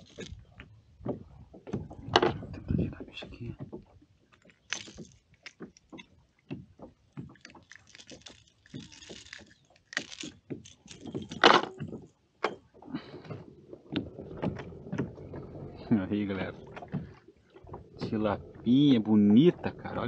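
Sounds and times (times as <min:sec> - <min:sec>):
small clicks and knocks: 0:03.6 - 0:12.7.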